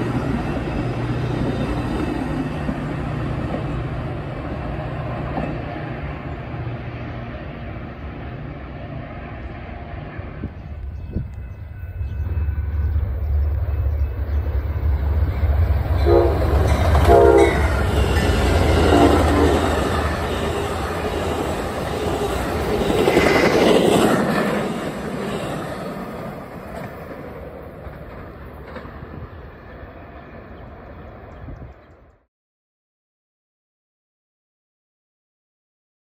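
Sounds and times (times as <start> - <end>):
train wheels rolling on rails: 0.0 - 31.8
diesel locomotive rumble: 0.0 - 32.1
train horn blasts: 15.9 - 20.6.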